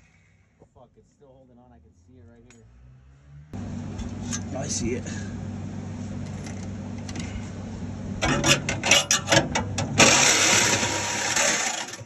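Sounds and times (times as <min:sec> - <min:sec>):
steady low hum: 0:03.5 - 0:12.0
metallic knocks and rattles: 0:08.2 - 0:10.2.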